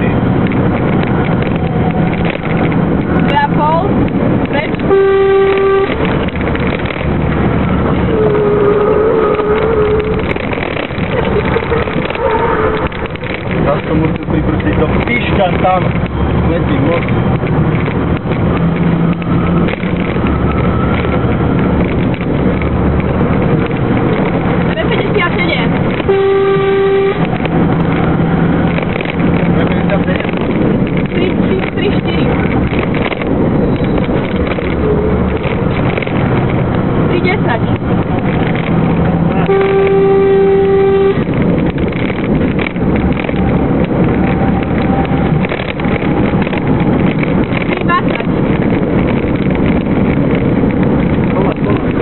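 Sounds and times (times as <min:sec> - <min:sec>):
truck engine running under load: 0:00.0 - 0:52.0
wind noise: 0:00.0 - 0:52.0
horn sounding steady note: 0:04.8 - 0:06.1, 0:08.1 - 0:10.3, 0:12.1 - 0:13.2, 0:26.0 - 0:27.4, 0:39.4 - 0:41.4.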